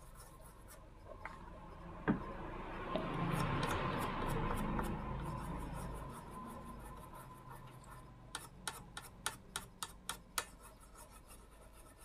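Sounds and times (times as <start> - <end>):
brush scrubbing circuit board: 0.0 - 1.1, 3.2 - 12.0
sharp evenly spaced ticks: 3.2 - 11.8.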